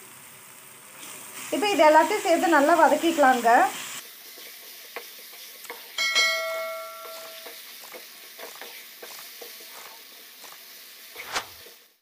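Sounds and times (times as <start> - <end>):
wooden spatula scraping and tapping: 4.3 - 6.0, 7.0 - 11.8
notification bell chime: 6.0 - 7.4.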